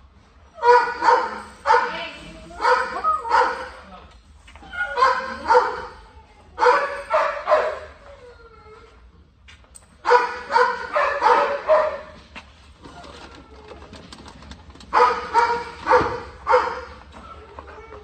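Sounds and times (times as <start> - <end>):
dog barking and yipping: 0.6 - 3.8, 4.6 - 6.0, 6.6 - 8.0, 10.0 - 12.2, 14.9 - 17.1.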